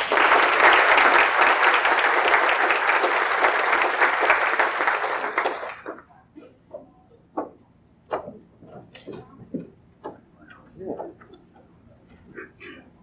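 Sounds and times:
audience applauding: 0:00.0 - 0:06.1
faint knocks: 0:06.7 - 0:12.2.

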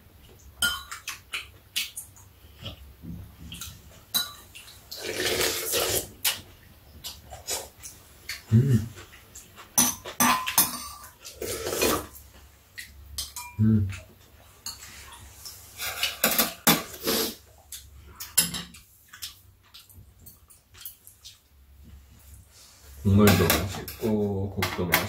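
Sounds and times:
utensils clinking on ceramic bowls: 0:09.8 - 0:11.2, 0:13.2 - 0:14.1.

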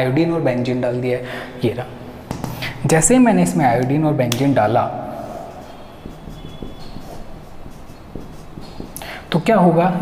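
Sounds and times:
low room noise: 0:00.0 - 0:10.0
marker writing on whiteboard: 0:02.2 - 0:02.8, 0:05.1 - 0:10.0
marker squeak: 0:05.5 - 0:09.0.

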